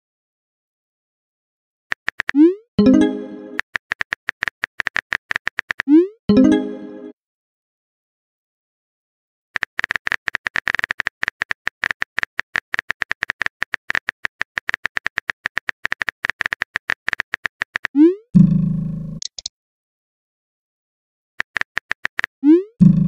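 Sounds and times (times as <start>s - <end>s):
phone keyboard clicks: 1.9s - 2.4s, 9.6s - 18.0s, 19.2s - 19.5s
message sent sound: 2.3s - 3.6s, 5.9s - 7.2s.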